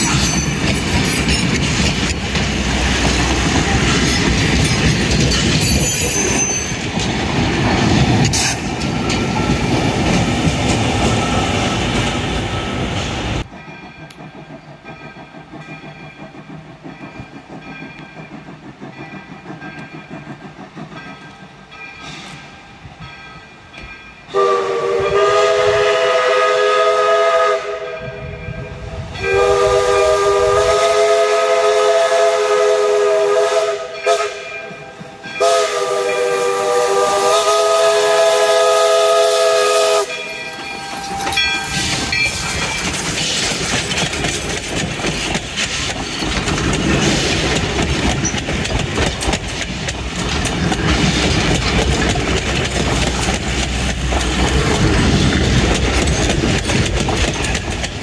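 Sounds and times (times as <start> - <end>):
train wheels clattering over rails: 0.0 - 27.4, 29.1 - 58.0
steam locomotive whistle blasts: 24.3 - 42.6.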